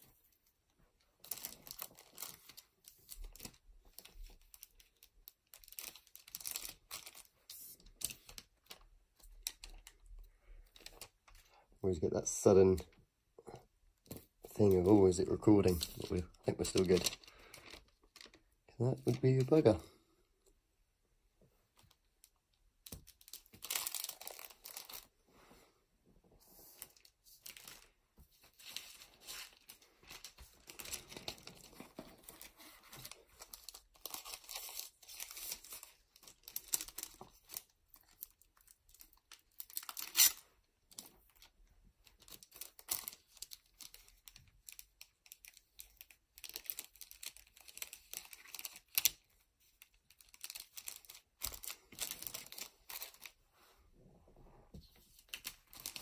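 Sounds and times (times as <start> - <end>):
plastic and foil crinkling: 0.0 - 11.6, 14.1 - 19.9, 21.7 - 25.1, 26.6 - 53.4, 54.9 - 56.0
plastic tearing or peeling: 39.5 - 40.4.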